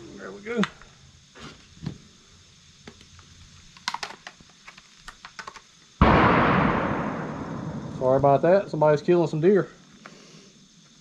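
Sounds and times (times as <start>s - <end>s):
gunshot echoing: 6.0s - 8.4s.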